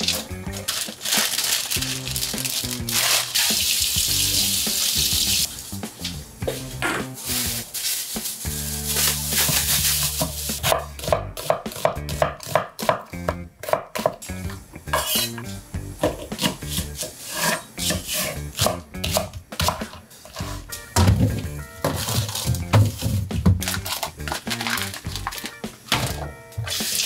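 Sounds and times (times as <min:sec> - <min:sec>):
utensils clinking and scraping: 0:00.0 - 0:02.0, 0:14.9 - 0:15.6, 0:21.8 - 0:27.0.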